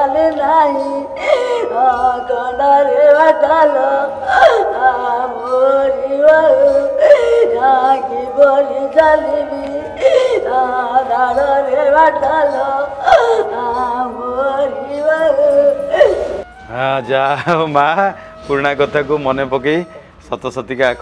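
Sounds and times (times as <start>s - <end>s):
woman singing a wailing lament: 0.0s - 16.5s.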